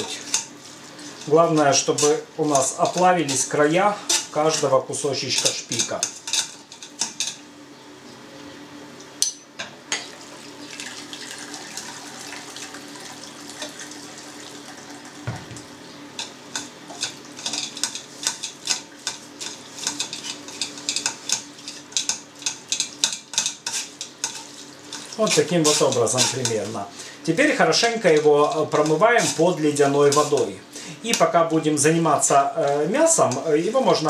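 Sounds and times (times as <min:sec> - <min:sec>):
water pouring into a pot: 0:10.6 - 0:15.2
metal spoon scraping a pot: 0:17.0 - 0:26.7, 0:28.1 - 0:30.5.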